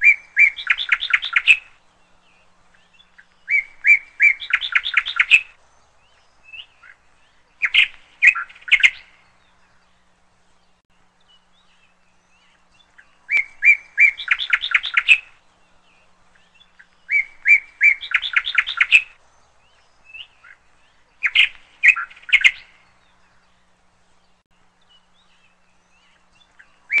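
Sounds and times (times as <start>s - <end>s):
songbird singing: 0.0s - 27.0s.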